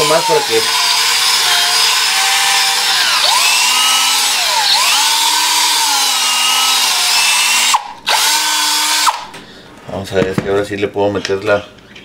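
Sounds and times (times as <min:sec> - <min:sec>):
electric drill boring into metal: 0:00.0 - 0:09.3.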